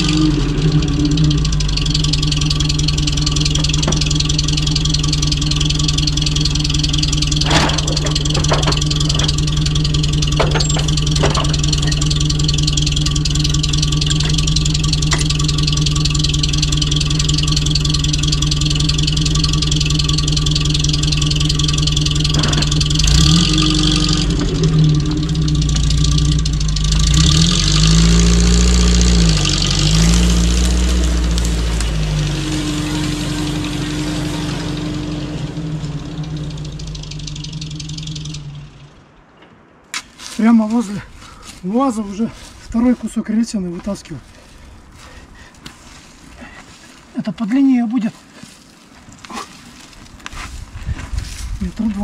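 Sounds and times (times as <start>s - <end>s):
vehicle engine idling and revving: 0.0s - 47.2s, 48.1s - 52.0s
sharp knocks: 3.4s - 12.6s.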